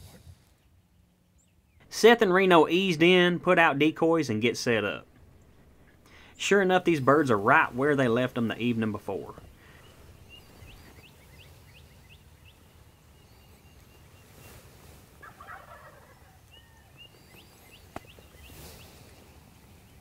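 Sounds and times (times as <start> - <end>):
small birds chirping: 4.3 - 20.0
distant turkey gobbling: 5.0 - 6.3, 9.3 - 18.8.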